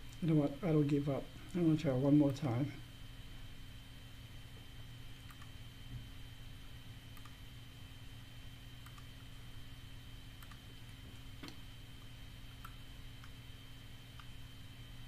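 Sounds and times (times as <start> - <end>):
low electrical hum: 0.0 - 15.0
computer mouse clicks: 5.2 - 5.6, 7.2 - 7.4, 8.8 - 9.1, 10.4 - 10.7, 12.6 - 13.4, 14.1 - 14.4.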